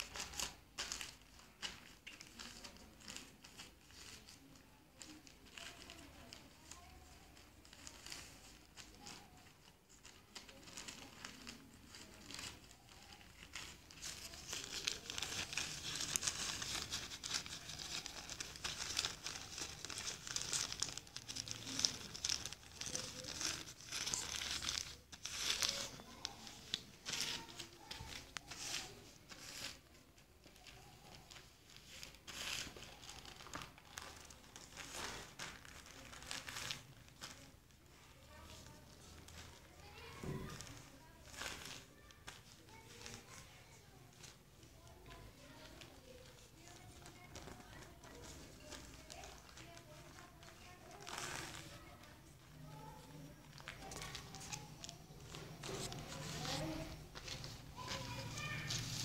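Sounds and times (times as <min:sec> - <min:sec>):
newspaper crinkling and rustling: 0:00.0 - 0:59.0.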